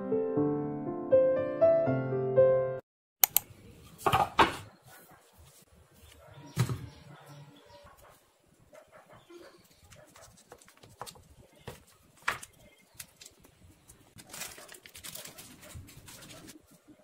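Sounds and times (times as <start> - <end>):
plastic packet crinkling: 14.2 - 16.6.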